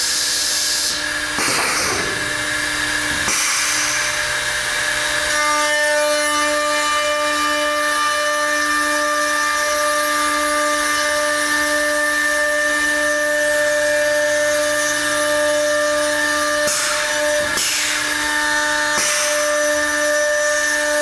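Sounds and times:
router motors whining: 0.0s - 21.0s
burst of hiss: 3.3s - 4.3s, 17.6s - 18.1s, 19.0s - 19.4s.

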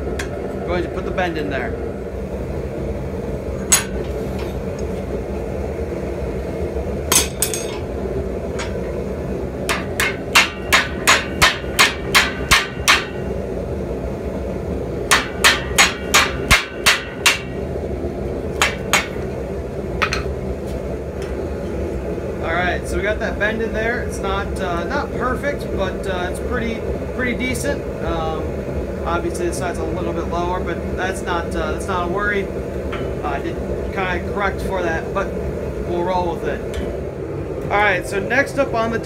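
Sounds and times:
hammer blows on hot steel: 9.6s - 13.4s, 15.1s - 17.6s, 18.6s - 19.4s.

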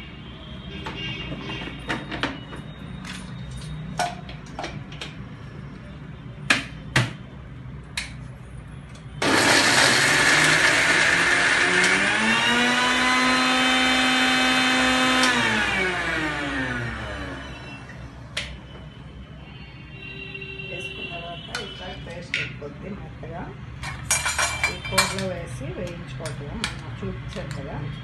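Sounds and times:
mixer grinder motor whining: 9.2s - 18.0s.

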